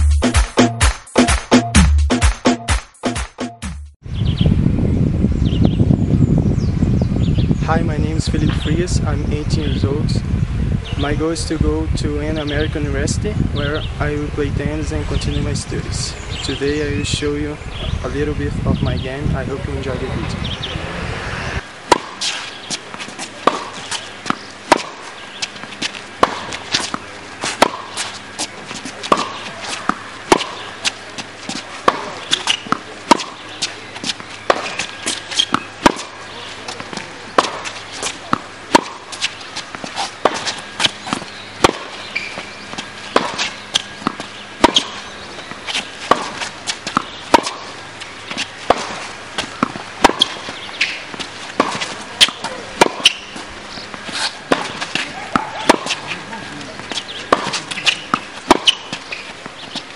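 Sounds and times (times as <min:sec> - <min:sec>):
rackets striking tennis ball: 0:21.8 - 0:59.9
ball bouncing on court: 0:21.9 - 0:25.6, 0:28.7 - 0:30.7, 0:31.5 - 0:59.8.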